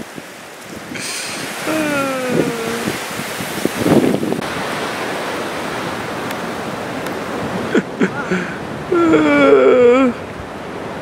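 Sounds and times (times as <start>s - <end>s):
gusty wind on microphone: 0.0s - 11.0s
shore surf: 0.0s - 11.0s
person vocalizing oooh: 1.1s - 3.0s, 8.1s - 10.2s.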